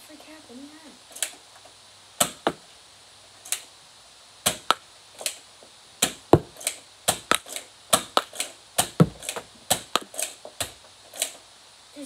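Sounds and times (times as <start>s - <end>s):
toy blaster firing clacks: 6.0s - 11.4s.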